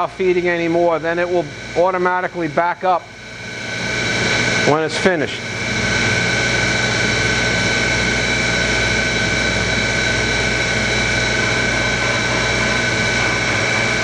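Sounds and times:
surface grinder whining: 0:05.4 - 0:14.0.

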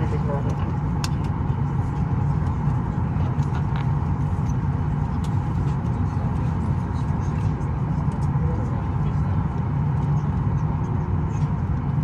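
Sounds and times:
aircraft cabin rumble: 0:00.0 - 0:12.0.

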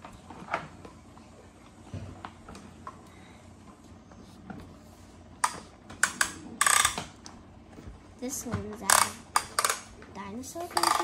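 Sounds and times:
plastic shape cutters clicking: 0:10.7 - 0:11.0.

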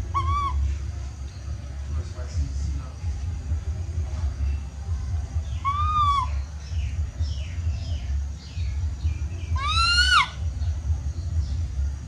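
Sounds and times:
baby monkey coo calls: 0:00.0 - 0:00.7, 0:05.4 - 0:06.5, 0:09.5 - 0:10.5
steady low rumble: 0:00.0 - 0:12.0.

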